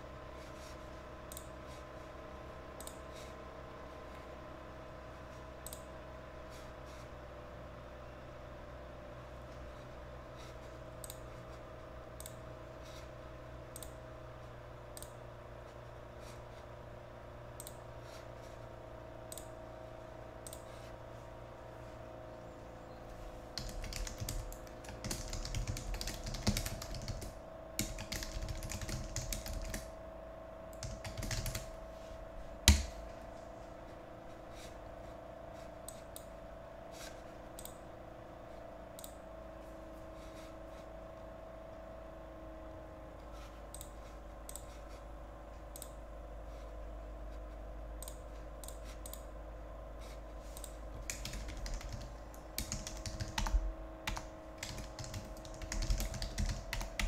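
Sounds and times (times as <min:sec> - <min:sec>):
electrical hum: 0:00.0 - 0:57.0
keyboard typing clicks: 0:01.3 - 0:01.5, 0:02.8 - 0:03.0, 0:05.6 - 0:05.9, 0:11.0 - 0:11.3, 0:12.2 - 0:12.4, 0:13.7 - 0:14.0, 0:15.0 - 0:15.2, 0:17.6 - 0:17.8, 0:19.3 - 0:19.5, 0:20.4 - 0:20.9, 0:23.6 - 0:29.9, 0:30.7 - 0:31.8, 0:32.6 - 0:33.1, 0:37.6 - 0:37.8, 0:39.0 - 0:39.2, 0:43.7 - 0:44.8, 0:45.7 - 0:46.0, 0:48.0 - 0:49.3, 0:50.5 - 0:57.0.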